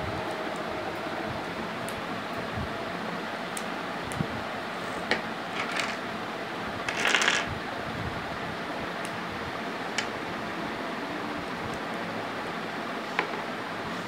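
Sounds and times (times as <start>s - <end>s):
plastic pieces rattling: 5.6s - 6.0s, 6.9s - 7.5s
plastic blocks clicking together: 6.9s - 7.5s.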